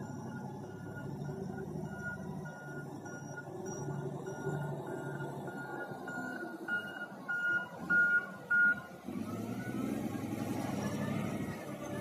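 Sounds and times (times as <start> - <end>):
reversing alarm beeps: 0.0 - 8.9
diesel engine revving: 0.0 - 12.0.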